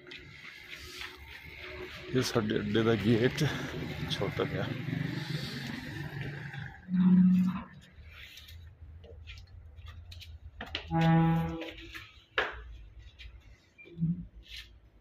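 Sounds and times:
horn-like tone: 6.9 - 7.7, 10.9 - 11.8
footsteps on concrete stairs: 9.0 - 11.2.

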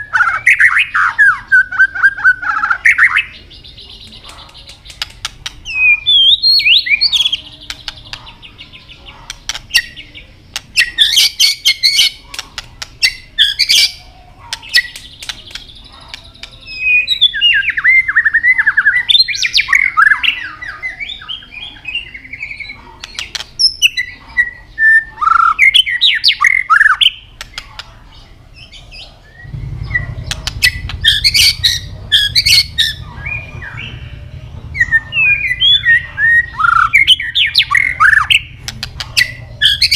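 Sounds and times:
bird sharp clicking calls: 4.0 - 18.3, 22.6 - 24.5, 25.2 - 34.1, 34.8 - 39.9
bird singing whistled phrases: 5.6 - 7.4, 34.8 - 38.5
low rumble: 29.4 - 36.0.

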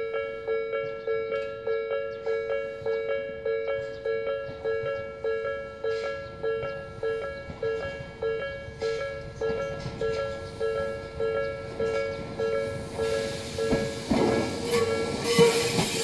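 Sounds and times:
level crossing alarm ringing: 0.0 - 16.0
electric train rumble: 0.1 - 16.0.

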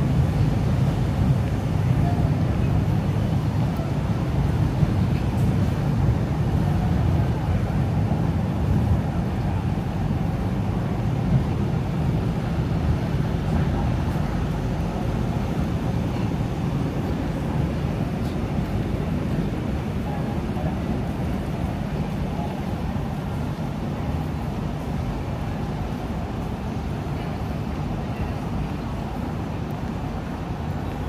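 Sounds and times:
machinery hum: 0.0 - 31.0
traffic hum: 0.0 - 31.0.

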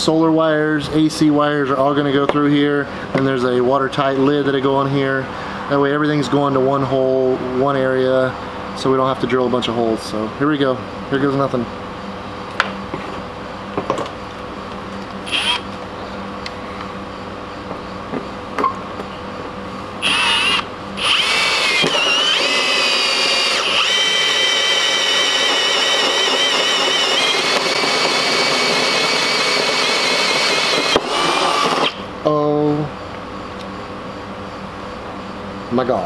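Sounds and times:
drill hole saw cutting metal: 15.2 - 15.6, 20.0 - 32.0.

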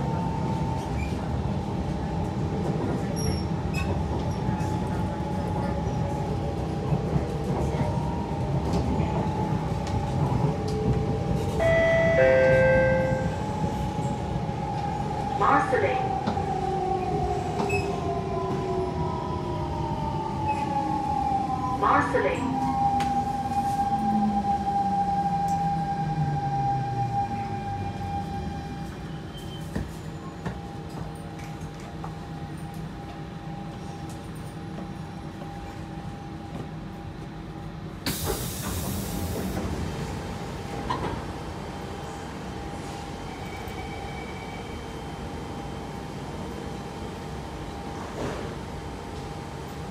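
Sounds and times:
metro train rumble and whine: 0.0 - 49.9
two-note signal: 11.6 - 13.3.

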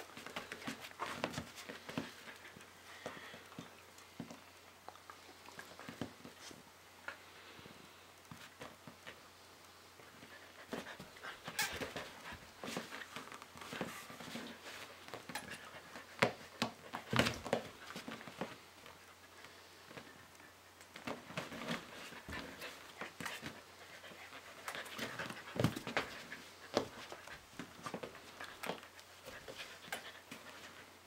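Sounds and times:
dog panting: 21.9 - 30.8.

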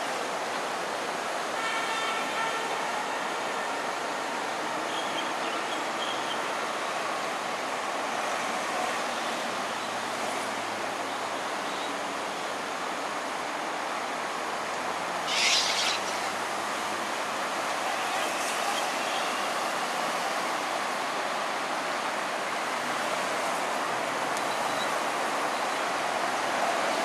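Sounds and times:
shallow water rushing over concrete: 6.4 - 27.0.

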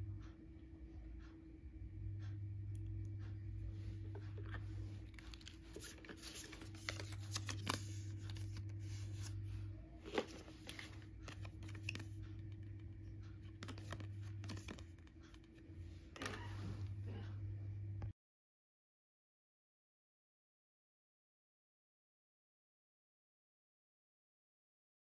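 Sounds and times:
steady low hum: 0.0 - 18.1
paper and cardboard rustling: 4.2 - 12.2, 13.5 - 15.5.

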